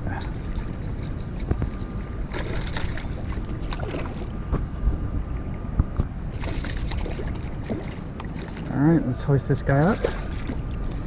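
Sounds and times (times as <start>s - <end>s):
steady low rumble: 0.0s - 11.0s
fish splashing in water: 2.2s - 4.4s, 6.3s - 8.8s, 9.8s - 11.0s.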